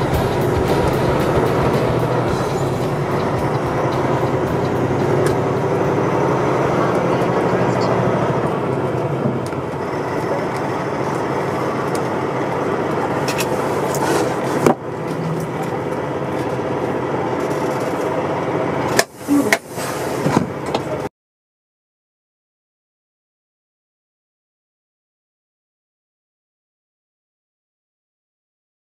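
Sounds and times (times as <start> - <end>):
diesel truck engine running: 0.0 - 21.1.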